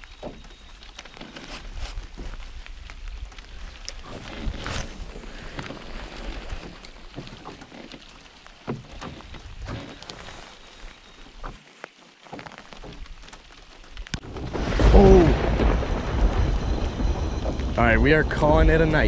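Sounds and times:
thunder crack and rumble: 14.1 - 19.0.

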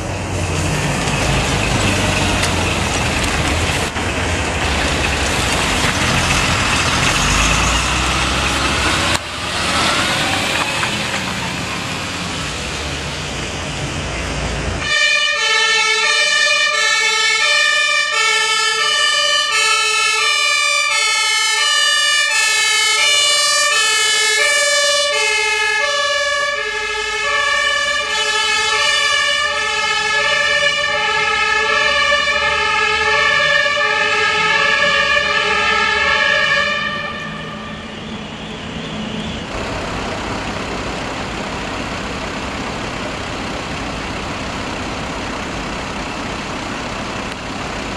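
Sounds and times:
vehicle engines running: 0.0 - 14.9, 18.3 - 47.9
fire engine two-tone siren: 14.8 - 39.6.

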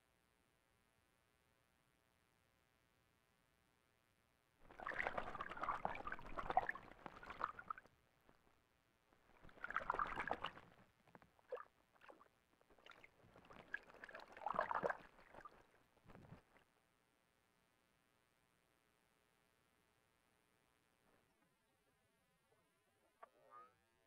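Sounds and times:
owl splashing in water: 4.7 - 8.5, 9.2 - 16.7.

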